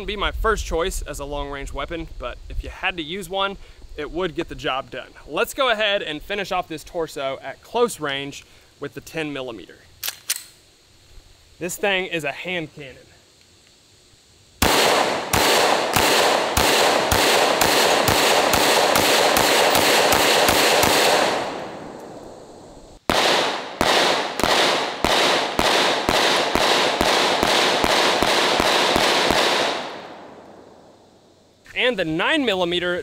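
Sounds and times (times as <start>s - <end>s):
pistol fired rapidly: 14.6s - 21.8s, 23.1s - 30.1s.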